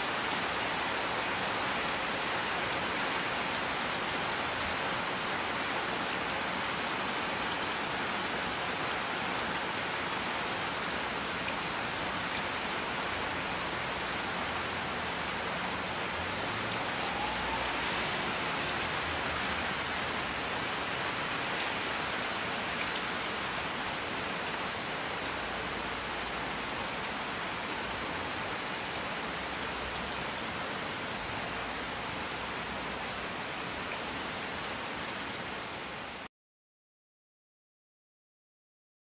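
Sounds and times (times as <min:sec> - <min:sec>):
heavy rain falling: 0:00.0 - 0:36.3.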